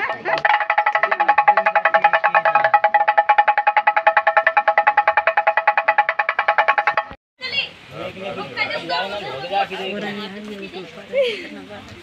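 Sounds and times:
pellet drum rattling: 0:00.0 - 0:07.2.

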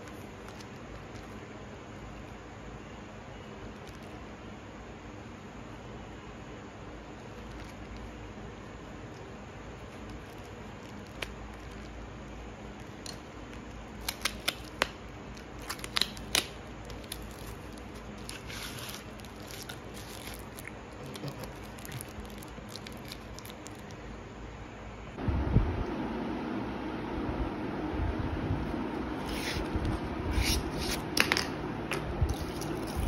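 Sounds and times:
foil wrapper rustling: 0:09.8 - 0:24.0.

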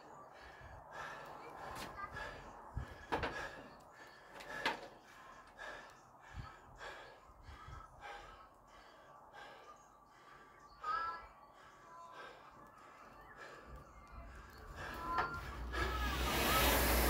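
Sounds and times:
man breathing hard: 0:00.0 - 0:17.0.

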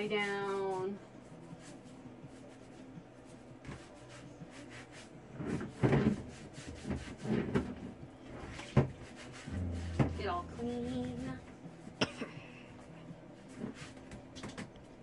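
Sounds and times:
water sloshing and rubbing: 0:08.6 - 0:11.4.

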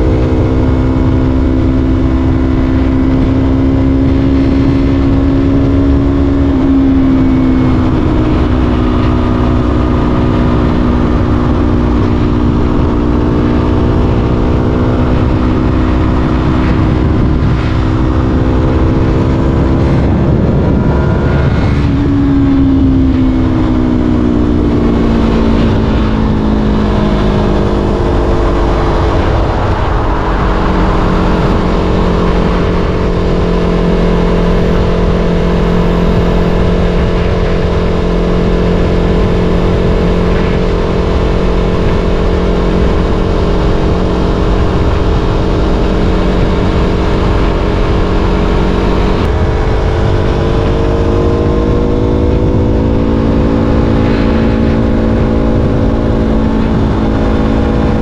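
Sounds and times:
motorcycle engine running: 0:00.0 - 0:58.0
wind rumble on microphone: 0:00.0 - 0:58.0.

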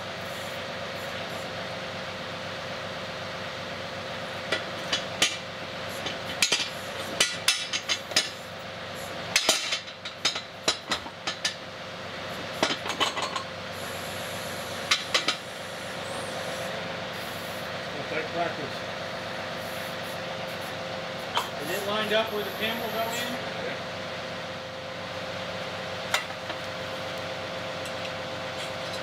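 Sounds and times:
diesel engine running: 0:00.0 - 0:29.0
steel parts knocking and clanking: 0:06.0 - 0:08.4, 0:09.3 - 0:11.6, 0:12.6 - 0:13.5.

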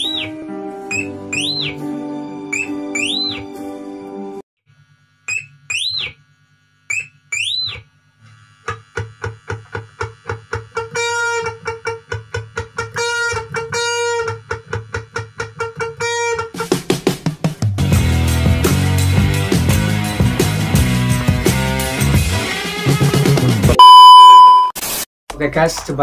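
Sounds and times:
wolf whistles: 0:00.9 - 0:01.8, 0:02.5 - 0:03.5, 0:05.3 - 0:06.2, 0:06.9 - 0:07.8.

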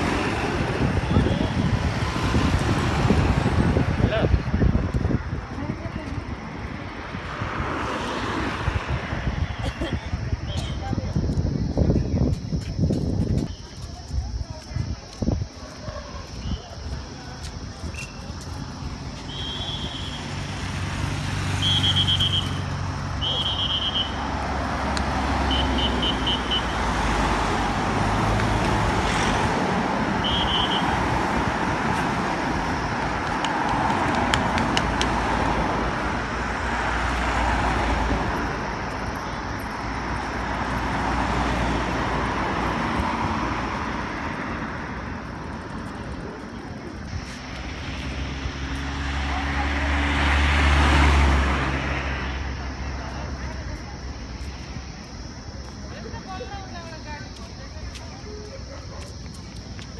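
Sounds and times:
cars driving past at speed: 0:00.0 - 0:10.4, 0:18.5 - 0:55.8
short high whistle blasts: 0:19.3 - 0:20.3, 0:21.6 - 0:22.6, 0:23.2 - 0:24.2, 0:30.2 - 0:30.8.

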